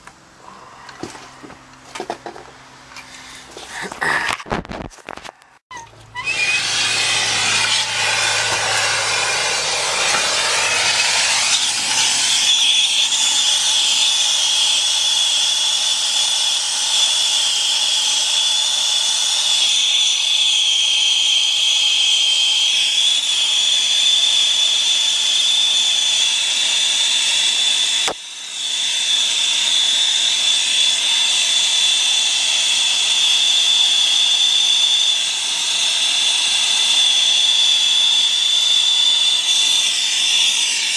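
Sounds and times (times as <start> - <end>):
high whistle: 5.7 - 40.9
torch flame hissing: 6.2 - 17.3.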